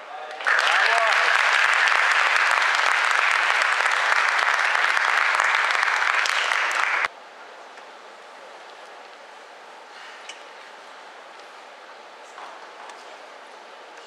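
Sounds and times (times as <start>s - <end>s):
audience applauding: 0.2s - 7.1s.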